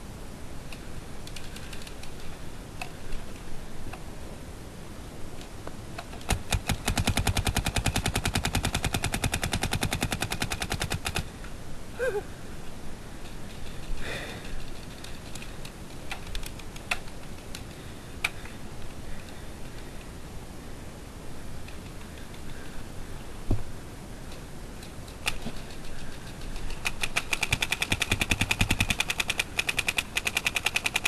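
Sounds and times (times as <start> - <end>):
paintball marker firing shots: 26.9 - 31.0.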